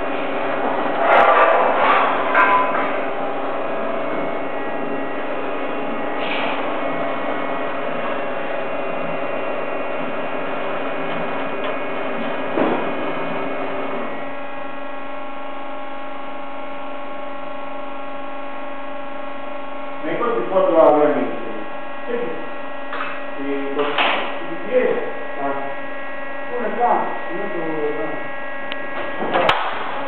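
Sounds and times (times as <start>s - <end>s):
roll-forming machine humming: 0.0s - 30.0s
sharp metallic clanks: 1.0s - 3.0s.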